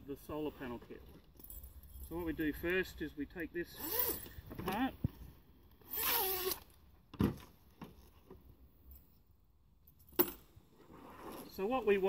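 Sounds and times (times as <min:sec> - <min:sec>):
zip rasping open: 0:03.8 - 0:04.4, 0:05.8 - 0:06.7.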